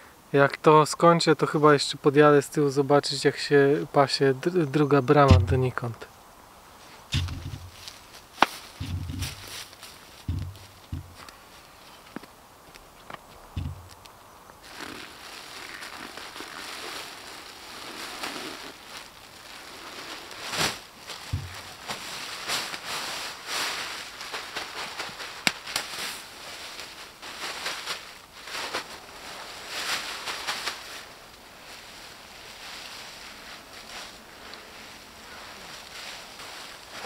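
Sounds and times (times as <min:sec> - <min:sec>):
leaves rustling and crackling: 0:04.4 - 0:37.0
dull thump: 0:05.3 - 0:05.7, 0:07.1 - 0:07.8, 0:08.4 - 0:09.6, 0:10.2 - 0:11.2, 0:13.5 - 0:13.9, 0:21.3 - 0:21.8.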